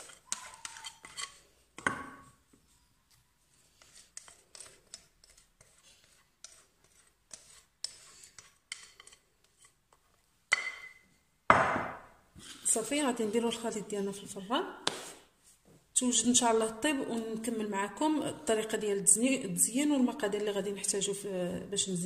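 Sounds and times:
whisk scraping glass bowl: 0:00.0 - 0:01.6, 0:03.5 - 0:10.2.

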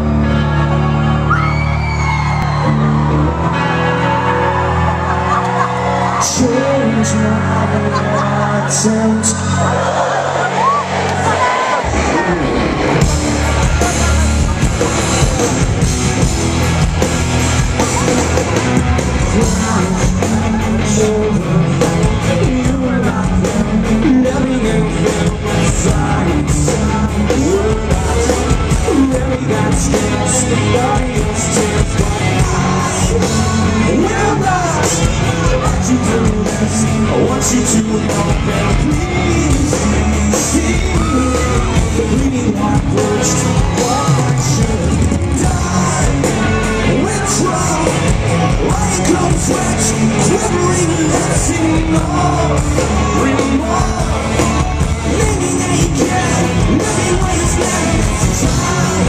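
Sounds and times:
live rock band: 0:00.0 - 0:59.0
man singing: 0:06.0 - 0:09.8, 0:18.9 - 0:59.0.

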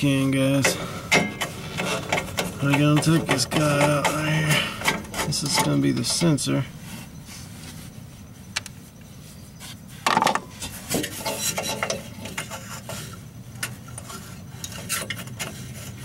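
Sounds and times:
small metal clicks and scraping: 0:00.5 - 0:06.5, 0:10.0 - 0:16.0.

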